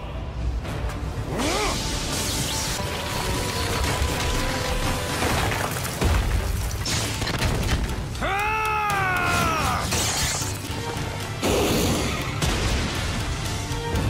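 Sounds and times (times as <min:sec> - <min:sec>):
dramatic battle music: 0:00.0 - 0:14.0
crashing and rumbling destruction: 0:02.8 - 0:08.2.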